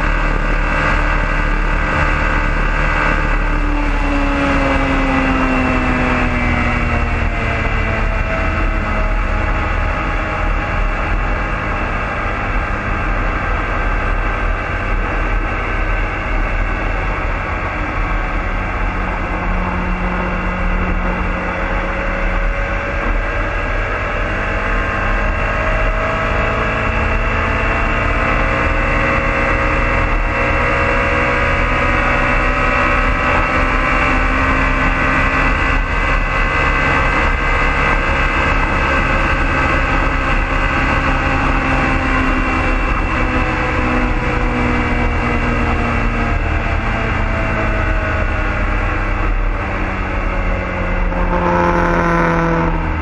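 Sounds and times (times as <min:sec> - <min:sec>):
motorcycle engine accelerating: 0:00.0 - 0:53.0.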